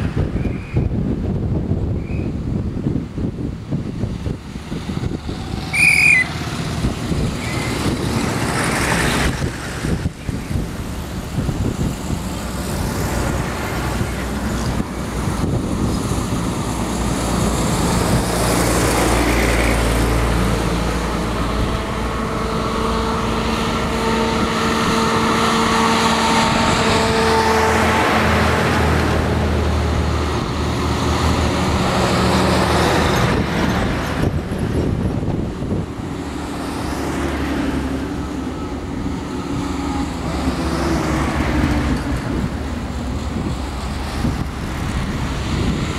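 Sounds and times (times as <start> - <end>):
tyres on road: 0.0 - 45.9
military vehicles driving past: 2.9 - 45.9
high-pitched squeal: 5.4 - 6.5.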